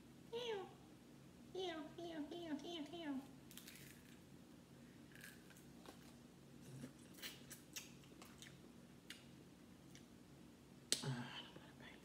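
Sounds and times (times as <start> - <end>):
shellfish shell cracking: 3.5 - 4.2.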